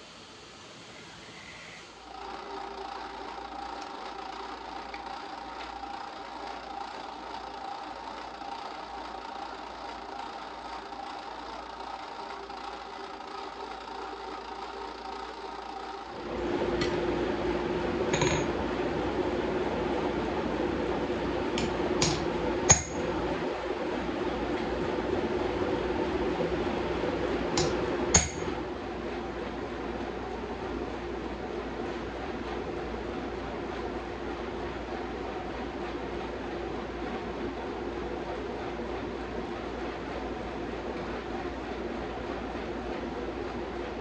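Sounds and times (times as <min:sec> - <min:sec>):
drill press motor drilling steel: 0:01.4 - 0:16.2
hammer striking hot blade on anvil: 0:18.1 - 0:18.5, 0:21.6 - 0:23.0, 0:27.6 - 0:28.5.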